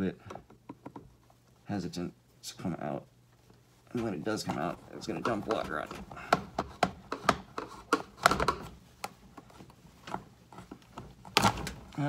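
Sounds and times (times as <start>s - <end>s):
screwdriver prying plastic fitting: 5.2s - 8.7s.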